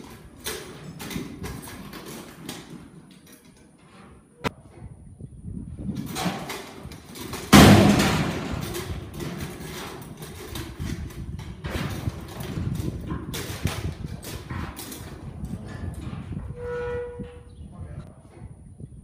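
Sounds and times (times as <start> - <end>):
hooves thudding on dirt: 6.0 - 17.6
loud metal crash: 7.4 - 9.7.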